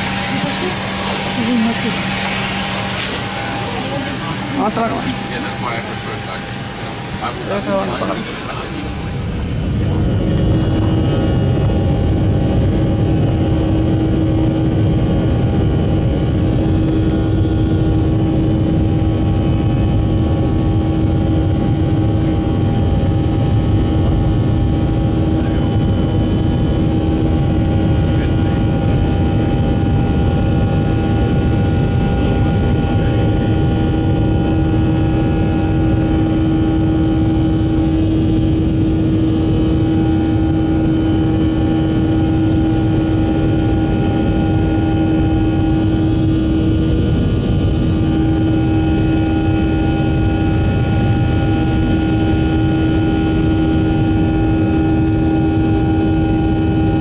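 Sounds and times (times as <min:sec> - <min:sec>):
jet engines droning in cabin: 0:00.0 - 0:57.0.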